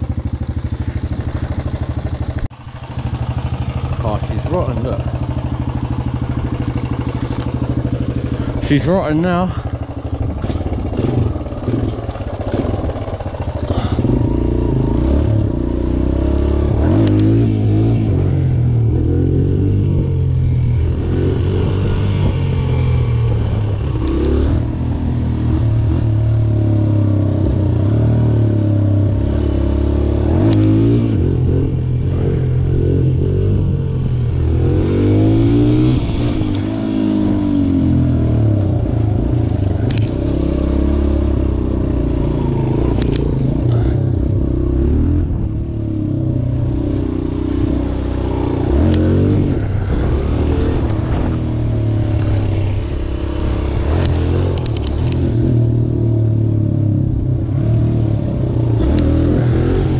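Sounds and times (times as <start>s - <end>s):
dirt bike engine revving: 0.0s - 59.9s
sharp clicks: 16.9s - 17.4s, 30.4s - 30.8s, 39.5s - 40.2s, 42.9s - 43.5s, 53.9s - 55.2s.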